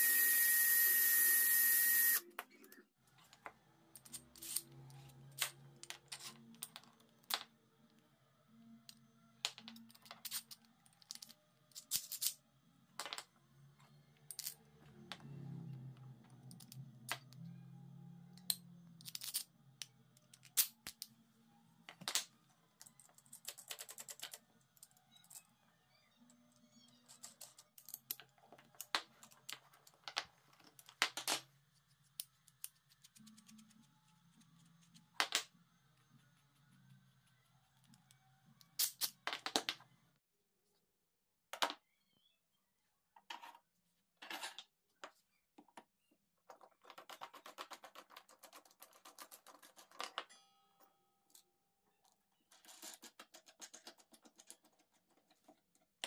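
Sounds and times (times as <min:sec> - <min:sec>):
faint background music: 0:02.2 - 0:40.2.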